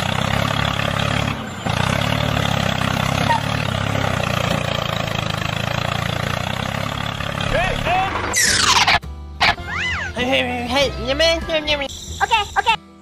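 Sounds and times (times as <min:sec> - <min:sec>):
tractor engine rumbling: 0:00.0 - 0:09.6.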